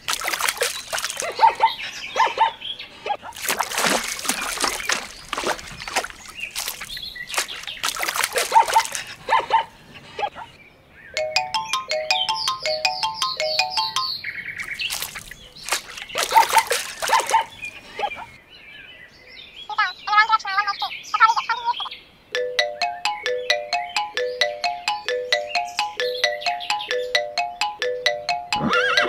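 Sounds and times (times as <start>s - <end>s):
water splashing in pond: 0.0s - 1.9s, 3.2s - 9.5s, 14.6s - 18.4s.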